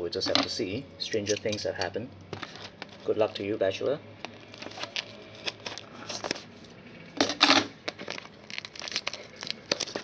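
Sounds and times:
plastic rustling: 0:04.2 - 0:06.6, 0:07.8 - 0:10.0.

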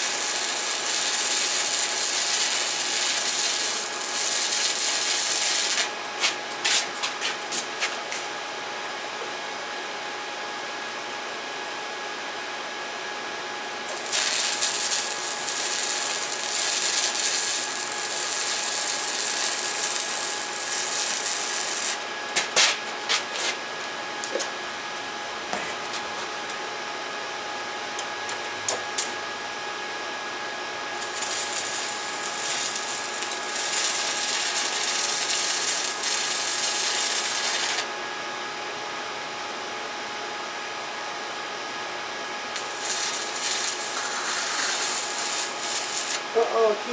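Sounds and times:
welding arc crackling hiss: 0:00.0 - 0:08.2, 0:13.9 - 0:23.6, 0:28.3 - 0:29.2, 0:31.0 - 0:37.9, 0:42.5 - 0:46.9.

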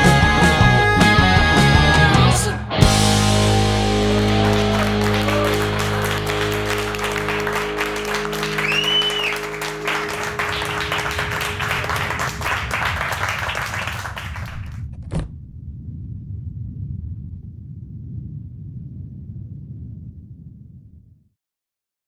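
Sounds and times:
electric guitar and bass chord: 0:00.0 - 0:12.6
low rumble: 0:02.9 - 0:21.3
crowd clapping and cheering: 0:03.1 - 0:14.9
whistle: 0:08.5 - 0:11.0.

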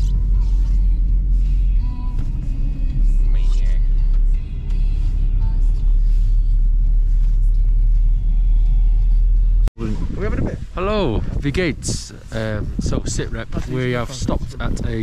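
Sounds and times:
faint music: 0:00.0 - 0:09.7
engine and road noise rumble: 0:00.0 - 0:15.0.

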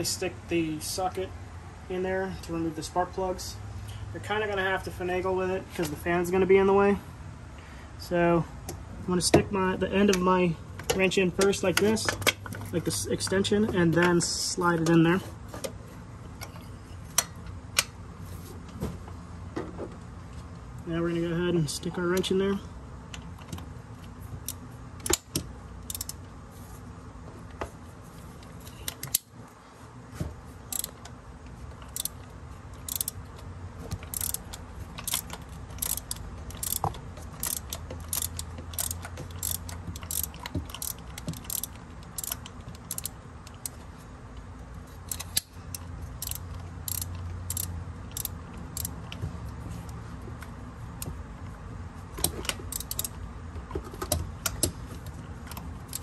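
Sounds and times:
socket ratchet clicking: 0:24.4 - 0:26.2, 0:30.7 - 0:31.2, 0:31.8 - 0:33.3, 0:34.0 - 0:43.8, 0:45.0 - 0:49.1, 0:52.4 - 0:53.2.

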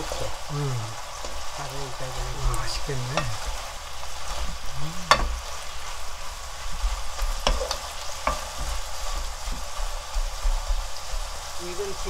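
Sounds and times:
food sizzling in a wok: 0:00.0 - 0:12.0
spatula stirring: 0:00.0 - 0:12.0
spatula knocking on pan: 0:05.1 - 0:05.5, 0:07.4 - 0:08.8.

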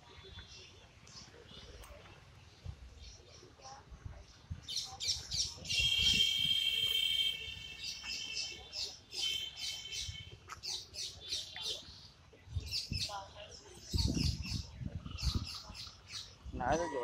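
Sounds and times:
birds chirping: 0:04.3 - 0:17.0.

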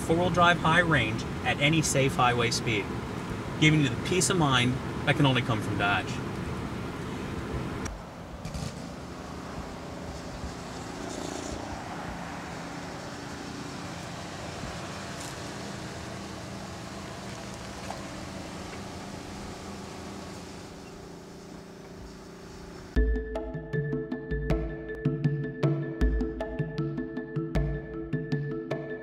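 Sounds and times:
outdoor background noise: 0:00.0 - 0:23.0
vehicle engine hum: 0:00.0 - 0:23.0.

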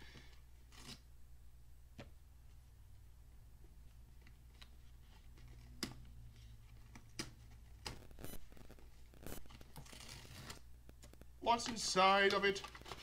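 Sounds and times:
faint clicks and taps: 0:10.8 - 0:13.0.

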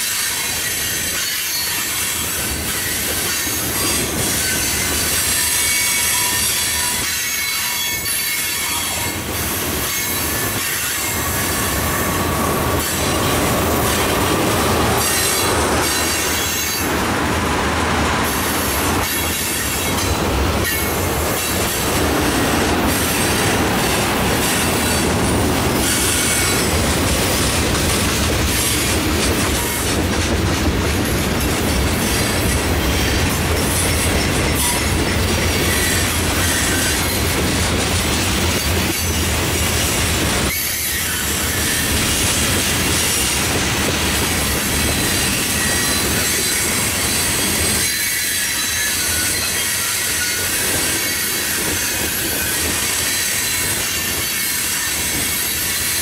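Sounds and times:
high wheel squeal: 0:00.0 - 0:17.1, 0:18.2 - 0:27.4, 0:32.0 - 0:37.4, 0:44.5 - 0:56.0
train wheels rumbling on rails: 0:00.0 - 0:56.0.

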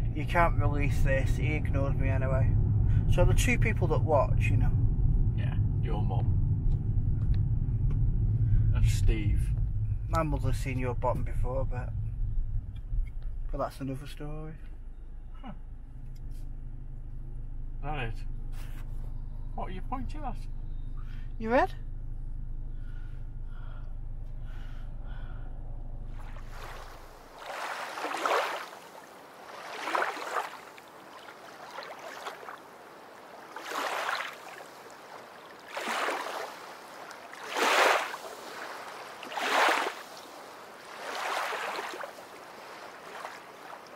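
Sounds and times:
road rumble inside moving car: 0:00.0 - 0:27.4.

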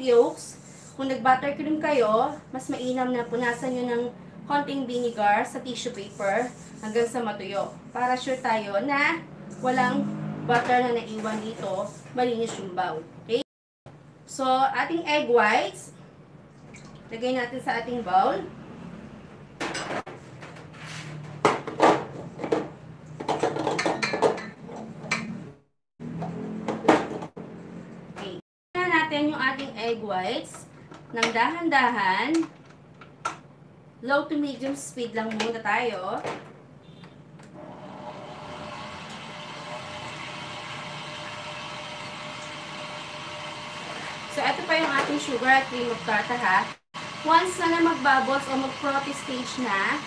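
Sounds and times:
electric stand mixer running: 0:37.6 - 0:50.0.

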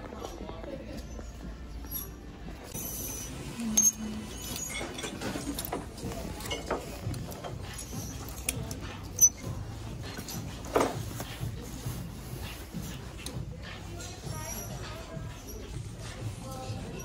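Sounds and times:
hangers sliding along rack: 0:02.7 - 0:11.2.

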